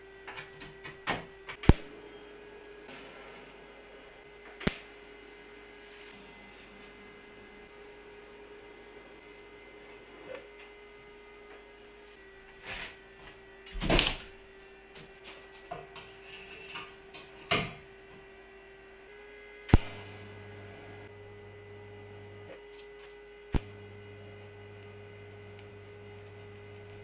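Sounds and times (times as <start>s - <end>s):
welding arc striking click: 1.6s - 6.9s, 19.7s - 22.6s, 23.5s - 27.0s
welding arc humming: 1.6s - 10.4s, 19.7s - 22.6s, 23.5s - 27.0s.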